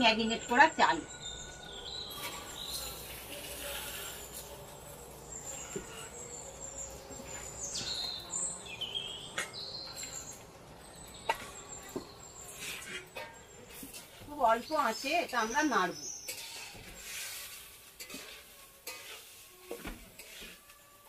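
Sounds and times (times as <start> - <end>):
birds chirping: 0.0 - 17.1
rice hissing in hot pan: 2.1 - 6.1, 16.6 - 20.8.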